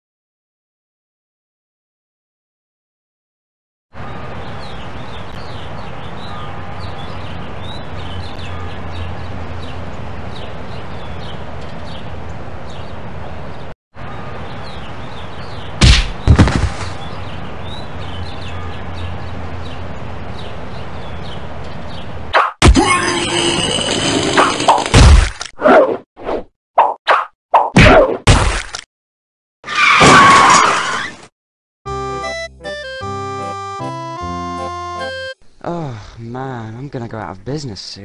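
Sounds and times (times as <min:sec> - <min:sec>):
birds chirping: 0:04.0 - 0:24.4
cartoon whack sound effects: 0:15.8 - 0:16.8, 0:22.3 - 0:23.0, 0:26.8 - 0:28.7.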